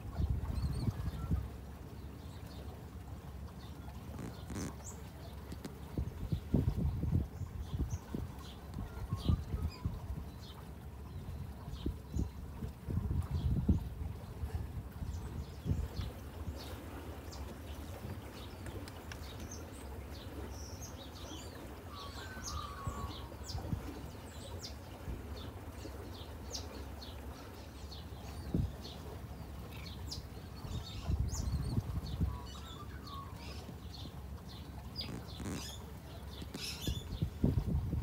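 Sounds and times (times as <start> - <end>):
birds chirping: 3.5 - 6.6, 15.1 - 37.4
warbling bird trills: 20.6 - 23.9.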